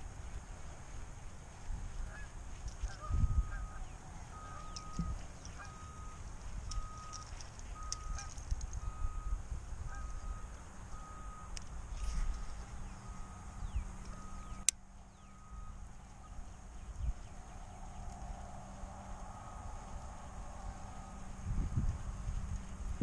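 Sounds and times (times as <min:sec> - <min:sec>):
low wind rumble: 0:00.0 - 0:23.0
steady repeating beep: 0:03.3 - 0:09.4, 0:10.0 - 0:11.6, 0:13.0 - 0:14.7.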